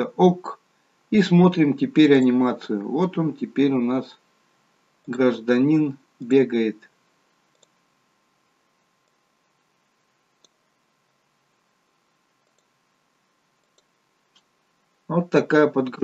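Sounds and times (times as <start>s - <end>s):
faint computer mouse clicks: 7.5s - 7.8s, 10.4s - 10.6s, 12.4s - 12.8s, 13.6s - 14.5s.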